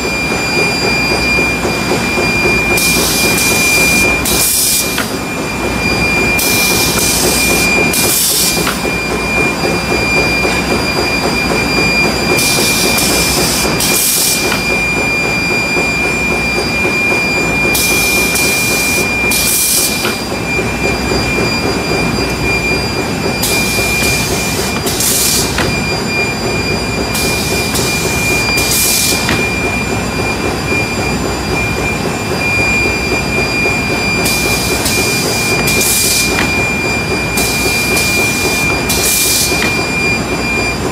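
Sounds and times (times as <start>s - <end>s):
machinery high whine: 0.0s - 40.9s.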